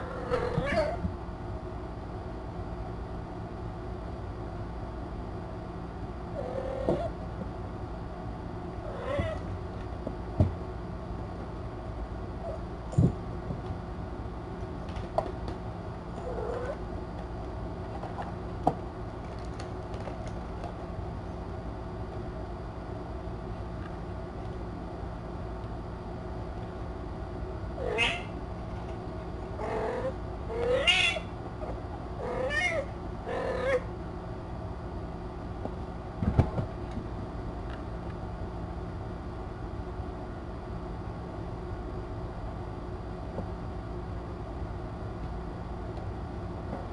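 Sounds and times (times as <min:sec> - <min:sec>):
cat meowing: 0:00.0 - 0:01.0, 0:08.9 - 0:09.4, 0:27.8 - 0:28.4, 0:29.7 - 0:31.3, 0:32.2 - 0:33.8
room hum: 0:00.0 - 0:46.9.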